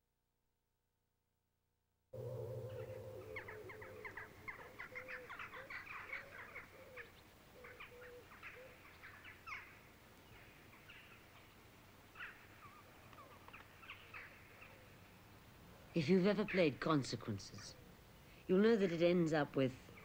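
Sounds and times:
low wavering bird call: 2.2s - 9.8s
birds chirping: 2.2s - 20.0s.

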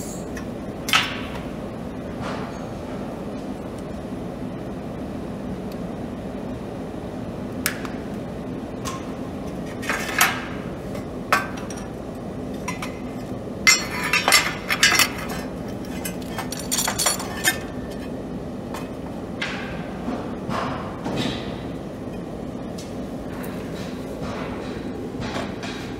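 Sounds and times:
steady machine hum: 0.0s - 25.9s
metal clinks and knocks: 13.7s - 18.0s.

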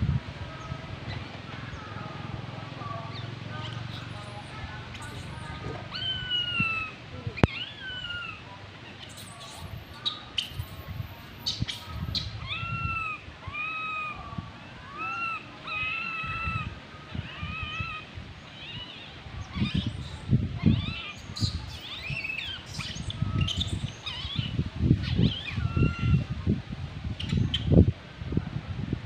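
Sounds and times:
infant monkey coo calls: 3.1s - 10.7s, 11.4s - 26.3s.

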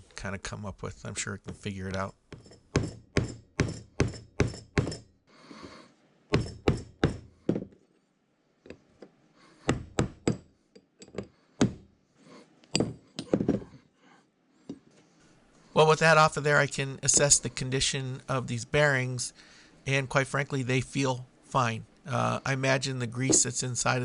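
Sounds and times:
hammer knocks on metal: 6.3s - 7.8s.

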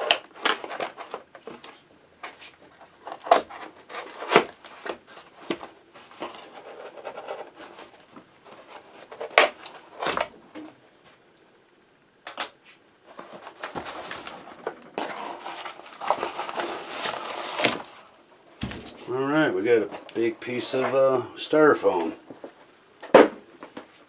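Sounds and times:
cardboard rustling: 0.0s - 10.3s, 13.0s - 21.0s
knife cutting cardboard and tape: 15.0s - 17.9s.

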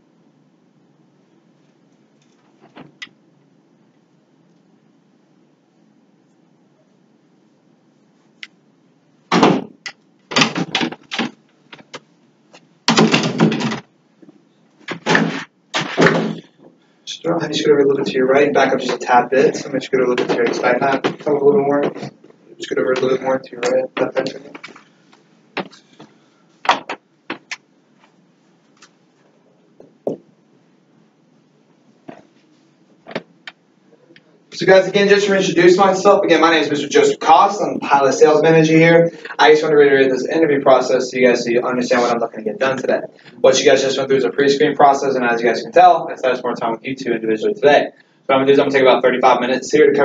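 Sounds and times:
faint steady hum: 0.0s - 50.0s
knocks and clicks: 9.3s - 12.1s, 12.9s - 16.8s, 20.1s - 22.3s, 26.6s - 27.6s
chairs being shifted: 10.3s - 12.0s
metal chairs clattering and scraping: 10.3s - 12.0s, 12.9s - 13.9s, 14.8s - 16.8s, 18.8s - 22.4s.

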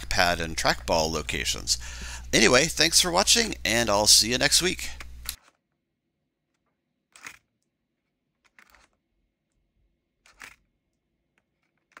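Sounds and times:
computer keyboard clicks and rustles: 5.0s - 5.8s, 6.4s - 12.0s.

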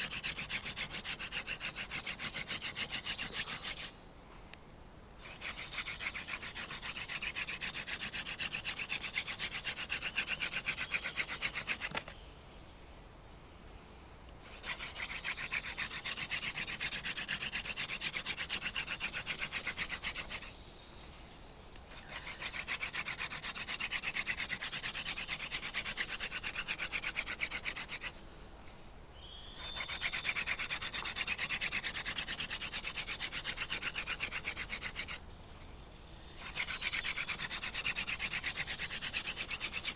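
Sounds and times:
wooden spindle grinding on board: 0.0s - 3.9s, 5.2s - 12.2s, 14.4s - 20.5s, 21.9s - 28.1s, 29.6s - 35.2s, 36.4s - 39.9s.

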